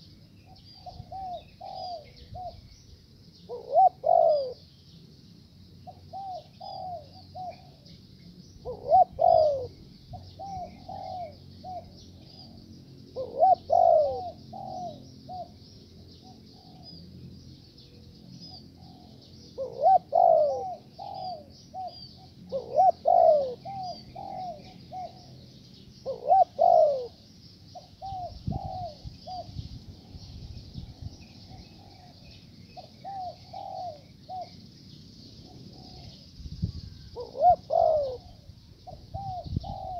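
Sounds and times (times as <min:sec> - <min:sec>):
doves cooing: 0:00.0 - 0:02.6, 0:03.5 - 0:04.7, 0:05.8 - 0:07.9, 0:08.6 - 0:15.6, 0:16.2 - 0:17.0, 0:18.5 - 0:25.4, 0:26.0 - 0:29.6, 0:31.4 - 0:34.6, 0:35.4 - 0:36.3, 0:36.9 - 0:39.9.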